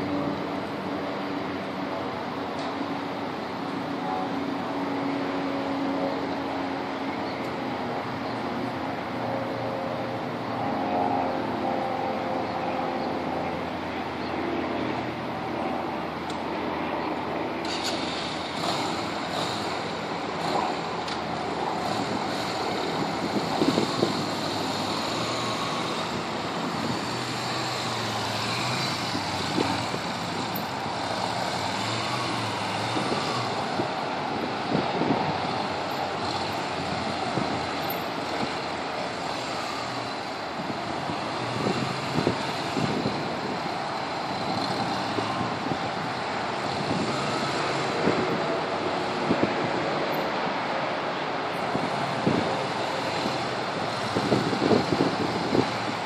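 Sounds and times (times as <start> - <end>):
motorcycle engine at low speed: 5.4 - 49.5
wind on microphone: 18.2 - 56.0.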